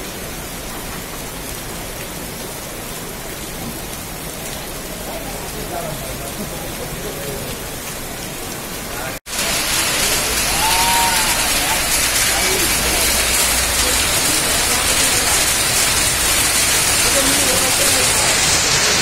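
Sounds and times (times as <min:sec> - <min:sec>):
heavy rain and hail on paving: 0:00.0 - 0:19.0
hail on plastic mat: 0:09.3 - 0:19.0.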